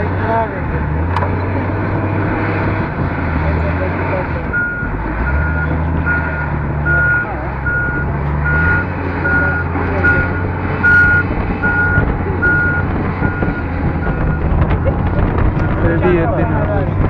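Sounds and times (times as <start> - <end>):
diesel engine running: 0.0 - 17.0
reversing alarm beeping: 4.5 - 14.4.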